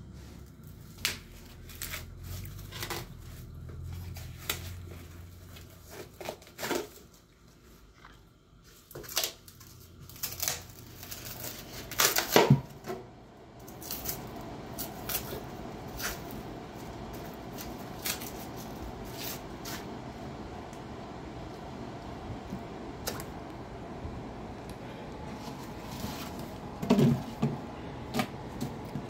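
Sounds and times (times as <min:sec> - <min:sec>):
plastic wrap crinkling and tearing: 0:00.6 - 0:07.3, 0:08.8 - 0:12.8, 0:13.6 - 0:19.9.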